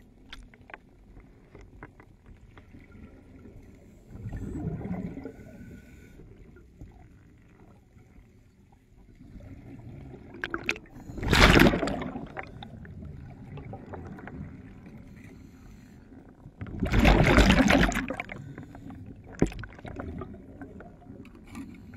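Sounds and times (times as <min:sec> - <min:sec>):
low underwater rumble: 0:00.9 - 0:21.9
diver's exhaled bubbles rushing: 0:09.6 - 0:14.6, 0:16.6 - 0:18.4, 0:19.3 - 0:21.0.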